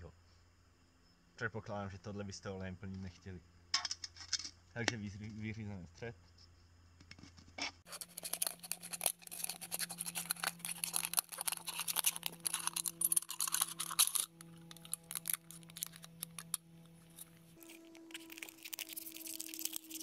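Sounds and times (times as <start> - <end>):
knife scraping aluminium can: 7.6 - 20.0.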